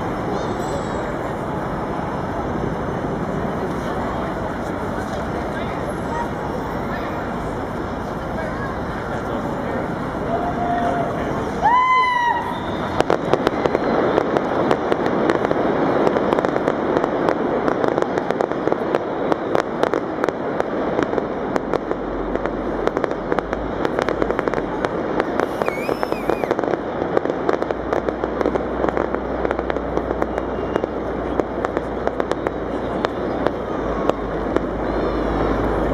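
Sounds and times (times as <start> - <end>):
fireworks crackling and popping: 0.0 - 35.9.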